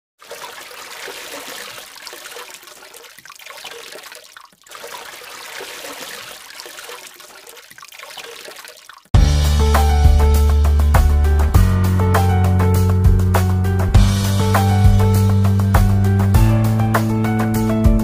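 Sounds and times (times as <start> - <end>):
rushing water: 0.2 - 9.2.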